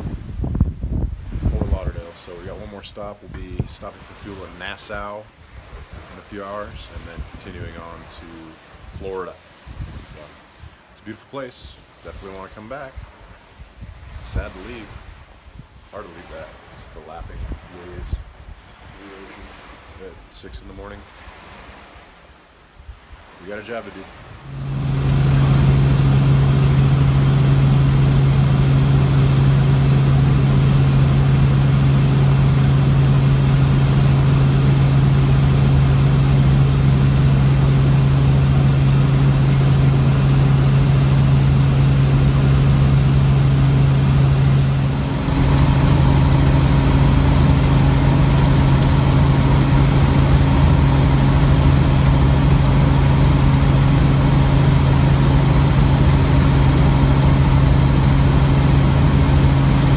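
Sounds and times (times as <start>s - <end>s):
helicopter engine and rotors drone: 23.8s - 59.9s.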